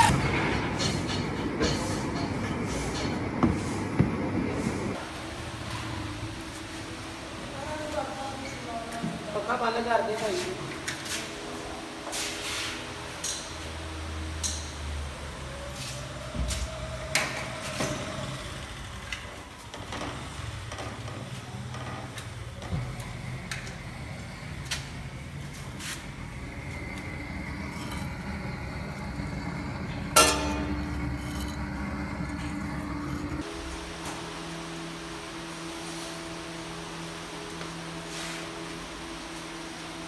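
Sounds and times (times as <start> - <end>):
gas torch burning: 15.7 - 37.8.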